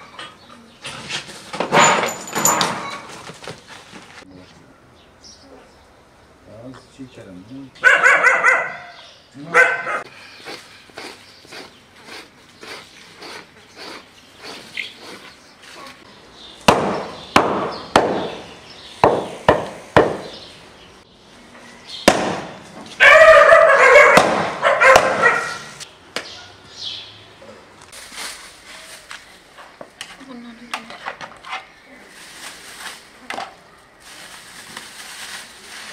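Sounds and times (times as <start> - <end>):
dog barking: 7.8 - 10.1, 23.0 - 25.7.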